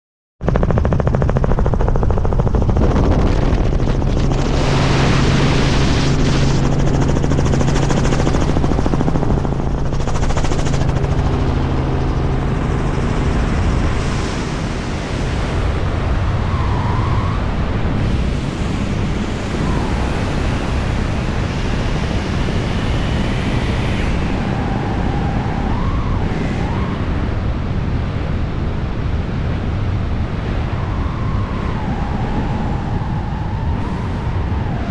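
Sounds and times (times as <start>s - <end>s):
helicopter engine and rotor drone: 0.4s - 34.9s
wind rushing over microphone: 0.4s - 34.9s
faint wavering whistles: 16.3s - 17.6s, 24.1s - 27.2s, 30.6s - 34.9s.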